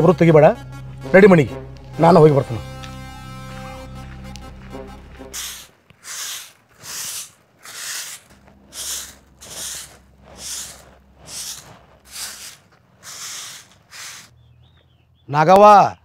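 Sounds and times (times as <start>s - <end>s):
stick broom sweeping earth: 4.7s - 14.3s.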